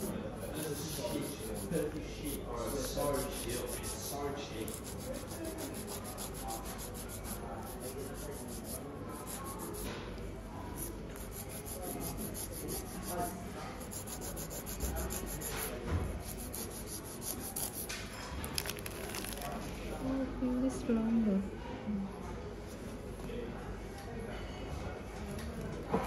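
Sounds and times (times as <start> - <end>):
nail file rubbing fingernails: 0.0 - 9.9, 10.8 - 17.9.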